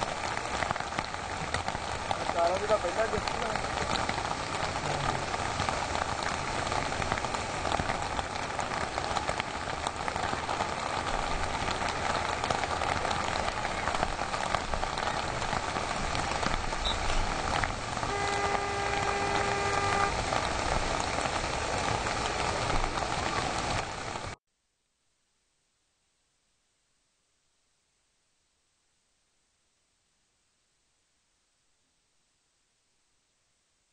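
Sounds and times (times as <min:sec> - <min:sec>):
steady rushing background noise: 0:00.0 - 0:24.4.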